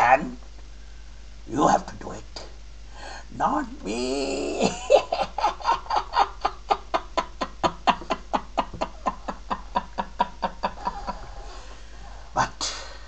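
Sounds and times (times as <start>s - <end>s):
man laughing: 3.9s - 11.4s.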